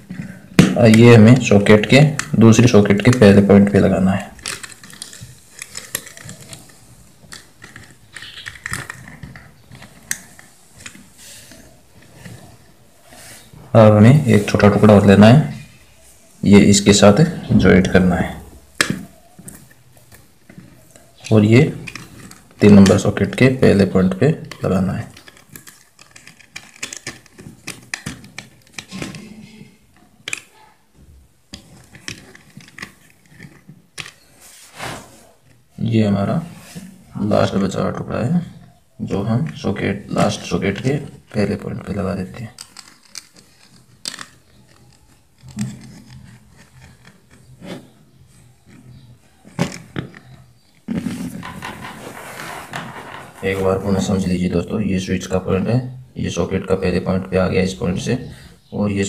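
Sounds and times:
hands clicking and scraping wire: 0.0s - 13.3s, 18.1s - 34.4s, 39.4s - 54.2s.

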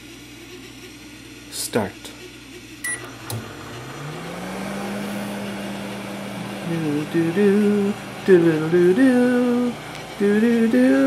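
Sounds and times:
microwave oven humming: 0.0s - 11.0s
microwave oven clicks: 2.8s - 3.6s.

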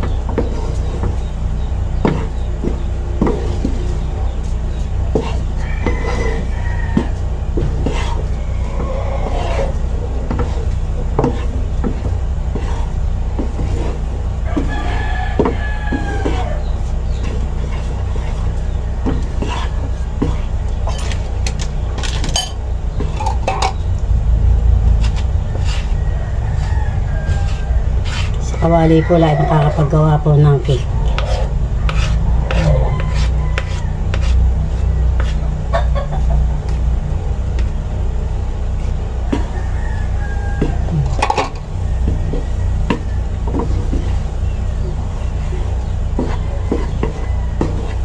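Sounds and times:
wooden spatula scraping pan: 0.0s - 1.3s, 2.0s - 23.8s, 24.9s - 35.5s, 38.8s - 48.0s
steady low hum: 0.0s - 48.0s
rooster crowing: 5.4s - 9.9s, 14.4s - 16.8s, 25.4s - 34.5s, 39.1s - 43.8s, 46.3s - 48.0s.

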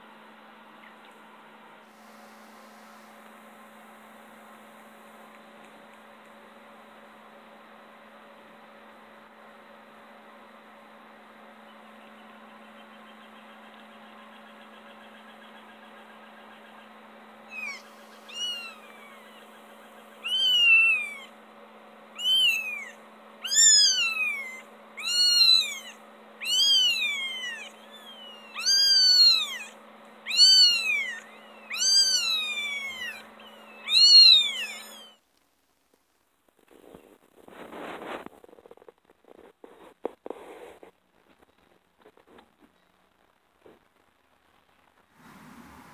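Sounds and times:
faint steady hum: 0.0s - 45.9s
kitten mewing: 17.5s - 19.5s, 20.2s - 21.3s, 22.2s - 35.2s.

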